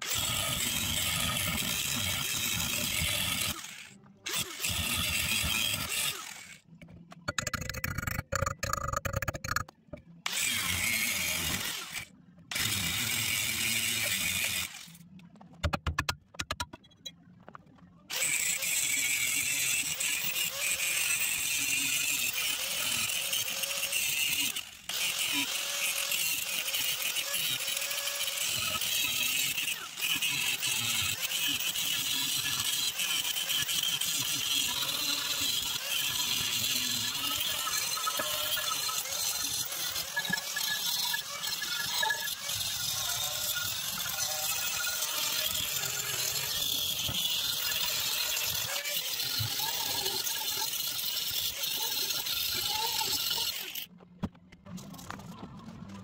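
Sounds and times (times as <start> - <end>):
angle grinder grinding steel: 0.0 - 14.9, 18.1 - 53.9.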